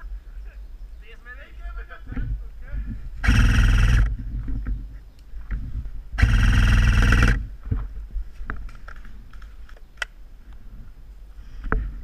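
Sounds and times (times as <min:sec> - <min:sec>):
airsoft gun full-auto burst: 0:03.2 - 0:04.1, 0:06.2 - 0:07.5.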